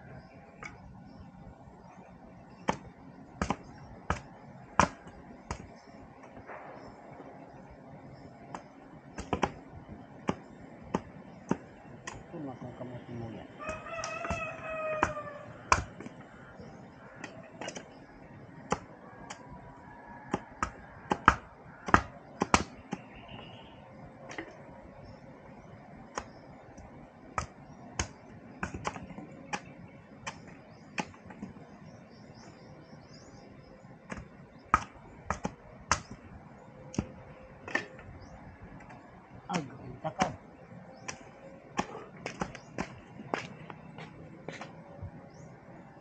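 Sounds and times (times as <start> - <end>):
rooster crowing: 13.5 - 15.9, 19.0 - 21.2
knife chopping bamboo: 20.2 - 23.1, 27.4 - 31.5.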